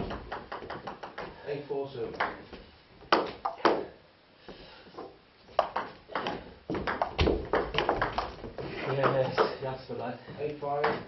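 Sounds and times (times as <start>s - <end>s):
table tennis ball hits: 0.0s - 1.4s, 2.1s - 2.4s, 5.6s - 8.4s.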